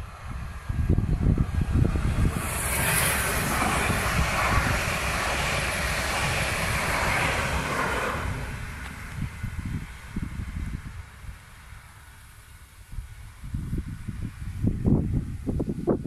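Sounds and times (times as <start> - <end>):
wind buffeting microphone: 0.0 - 11.8, 12.8 - 16.0
train passing at speed: 0.0 - 12.7.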